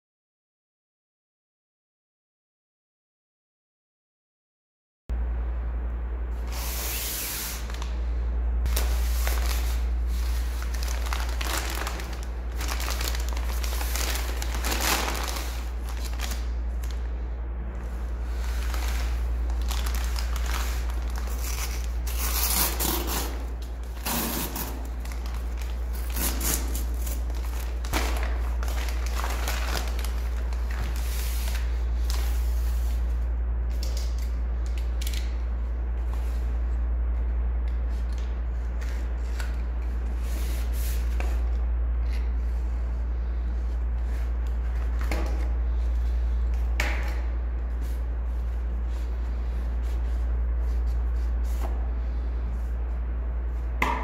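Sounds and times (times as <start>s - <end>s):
steady low hum: 5.1s - 54.0s
paper envelope tearing and rustling: 8.7s - 17.0s, 18.3s - 32.2s.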